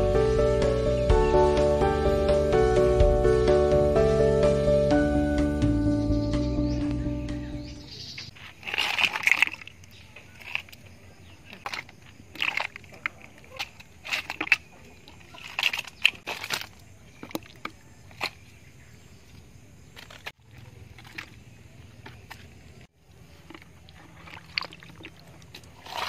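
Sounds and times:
eels splashing in water: 0:08.3 - 0:18.8, 0:19.9 - 0:26.0.

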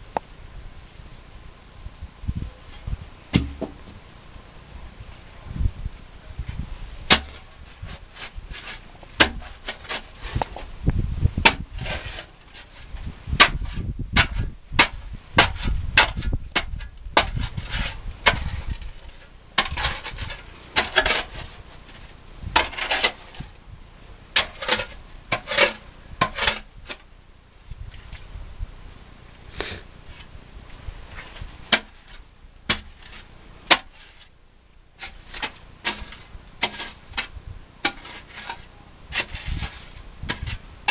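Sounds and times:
tool scraping wet gravel: 0:02.6 - 0:04.0, 0:06.5 - 0:23.6, 0:24.3 - 0:27.1, 0:29.5 - 0:34.4, 0:35.0 - 0:40.9
digging tool knocking gravel: 0:03.3 - 0:04.0, 0:07.1 - 0:10.7, 0:11.4 - 0:23.6, 0:24.3 - 0:27.1, 0:31.2 - 0:34.3, 0:35.0 - 0:40.9.

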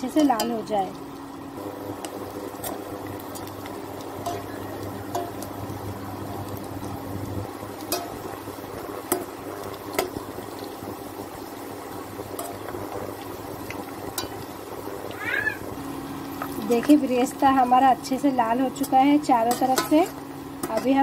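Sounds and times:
onions sizzling in oil: 0:00.0 - 0:21.0
low hum: 0:00.4 - 0:10.5.

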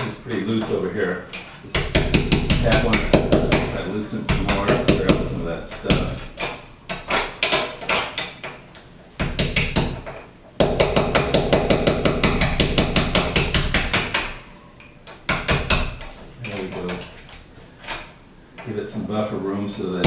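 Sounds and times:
hammer tapping chisel: 0:01.3 - 0:08.6, 0:09.2 - 0:14.4.

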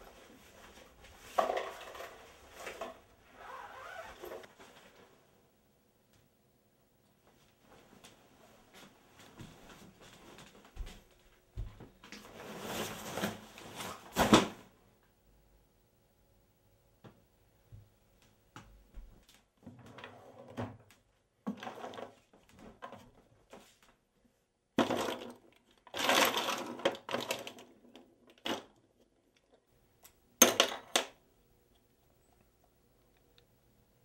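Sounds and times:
small hard objects clattering: 0:24.8 - 0:28.8.

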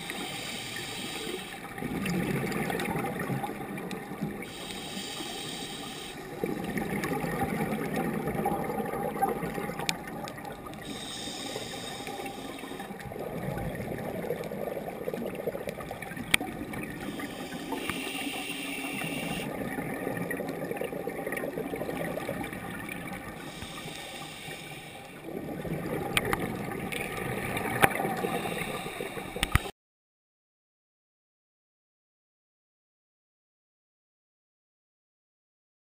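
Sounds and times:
regulator inhalation hiss: 0:00.0 - 0:01.7, 0:04.4 - 0:06.4, 0:10.8 - 0:12.9, 0:17.1 - 0:19.5, 0:23.4 - 0:25.2, 0:28.2 - 0:29.7
regulator bubbles gurgling: 0:00.0 - 0:29.7.

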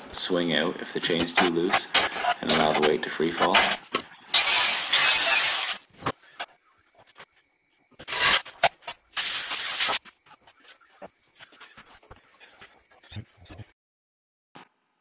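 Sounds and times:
arc welder crackling: 0:01.3 - 0:05.9, 0:08.0 - 0:10.0.

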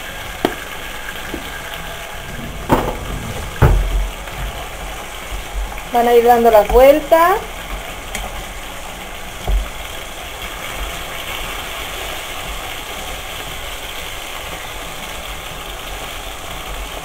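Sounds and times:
chicken sizzling in hot oil: 0:00.0 - 0:17.0
short knock: 0:02.4 - 0:04.1.

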